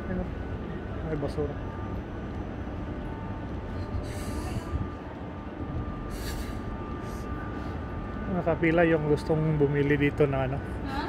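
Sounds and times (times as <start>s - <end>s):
city street rumble: 0.0s - 11.0s
short hisses: 6.1s - 6.6s.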